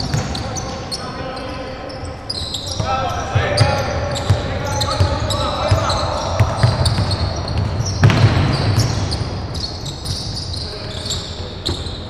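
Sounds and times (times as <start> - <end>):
basketball bouncing on wooden court: 0.0 - 0.7, 2.7 - 10.4, 11.6 - 12.0
sneakers squeaking: 0.0 - 12.0.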